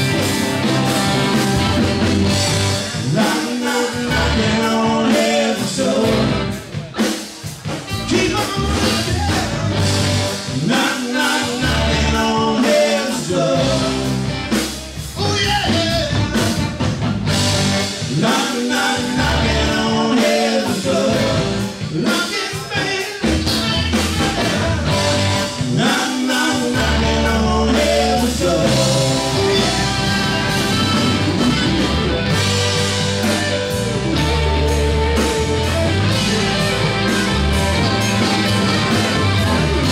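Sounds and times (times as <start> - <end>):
bass guitar: 0.0 - 39.9
drum kit: 0.0 - 39.9
electric guitars: 0.0 - 39.9
saxophone: 28.8 - 39.9.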